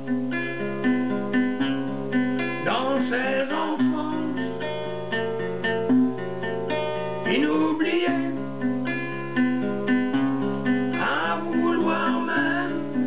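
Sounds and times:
strummed acoustic guitar: 0.0 - 13.0
person singing: 2.6 - 4.8, 7.0 - 8.6, 10.9 - 13.0.

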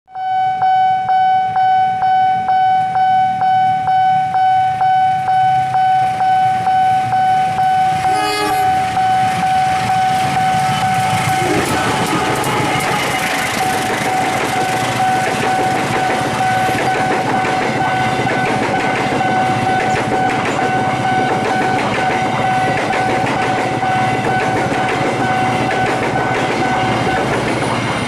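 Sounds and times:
railroad crossing alarm ringing: 0.1 - 28.0
locomotive engine and wheel noise: 4.6 - 28.0
locomotive horn blast: 7.7 - 9.4, 11.3 - 14.2.

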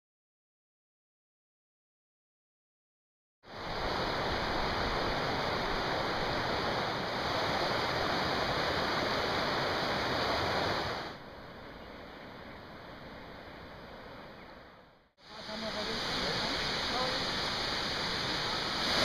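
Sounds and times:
river rushing over stones: 3.5 - 11.2, 15.2 - 19.0.

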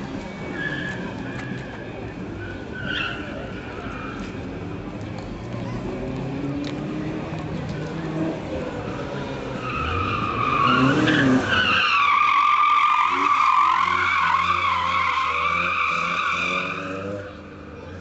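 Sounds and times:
tyres squealing: 9.5 - 17.3.

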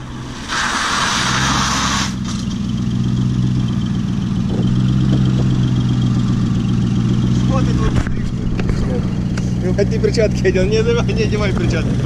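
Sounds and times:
tyre and road hiss: 0.0 - 2.5
car engine idling: 0.0 - 12.0.

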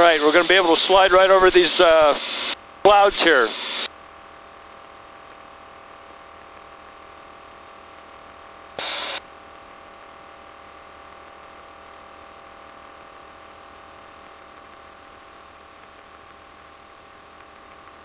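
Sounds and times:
steady intercom tones: 0.0 - 3.9, 8.8 - 9.2
intercom click and hiss: 8.8 - 9.2.

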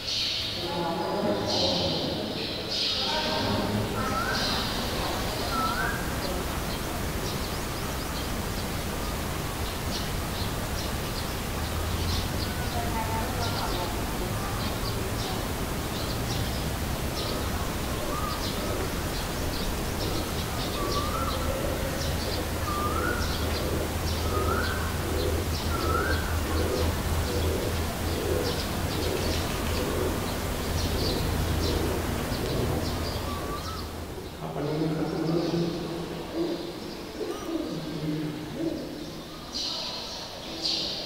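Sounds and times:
birds chirping: 0.0 - 41.0
low pulsing coos: 17.3 - 39.5.

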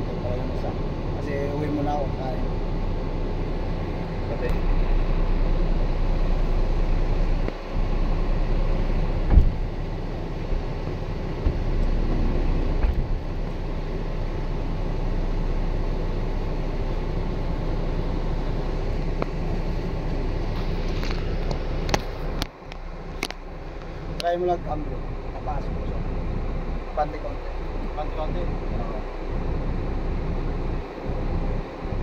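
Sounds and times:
diesel truck engine idling: 0.0 - 32.0
thump: 9.3 - 9.6.

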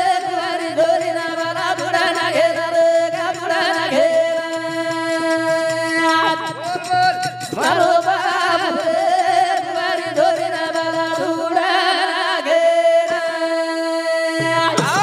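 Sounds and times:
men singing devotional song: 0.0 - 15.0
low rhythmic drum beat: 14.4 - 15.0.

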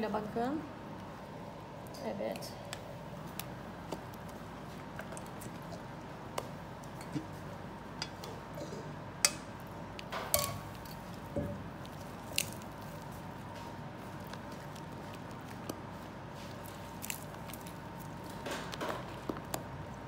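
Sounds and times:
cream squelching: 10.7 - 20.0.

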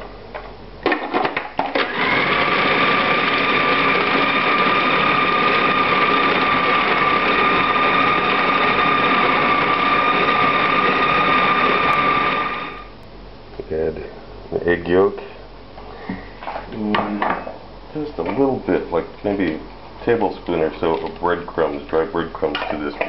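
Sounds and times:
food processor motor whining: 1.6 - 12.9.

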